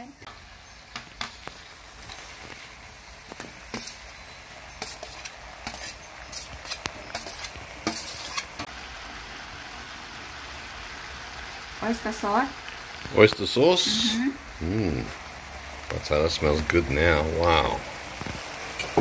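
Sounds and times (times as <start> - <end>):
sizzling in a hot wok: 0.0 - 19.0
metal spoon scraping a wok: 3.4 - 8.7.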